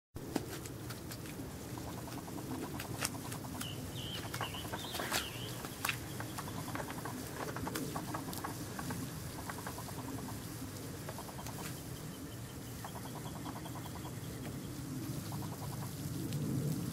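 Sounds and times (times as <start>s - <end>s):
dog pawing wet mud: 0.2s - 9.8s
high wavering chirp: 3.4s - 7.2s.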